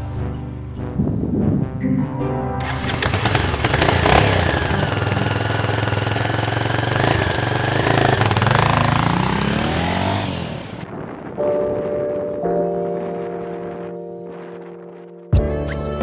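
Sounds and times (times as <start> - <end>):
background music: 0.0 - 4.9, 11.3 - 16.0
motorcycle engine running: 2.6 - 10.9.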